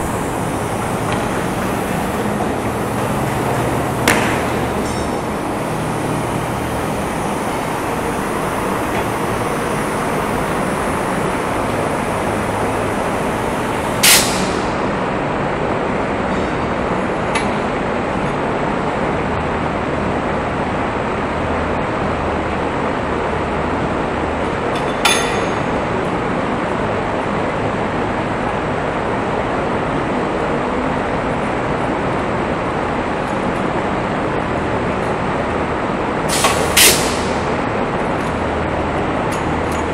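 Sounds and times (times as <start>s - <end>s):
rushing workshop noise: 0.0s - 15.4s, 34.4s - 39.9s.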